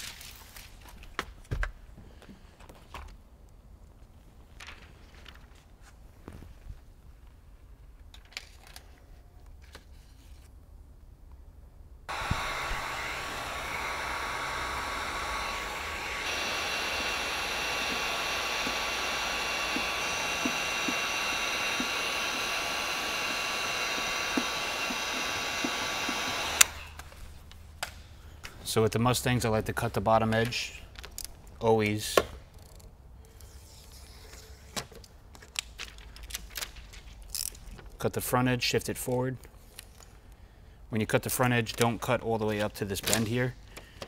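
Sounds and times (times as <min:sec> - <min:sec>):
electric blower motor whining: 0:12.1 - 0:27.1.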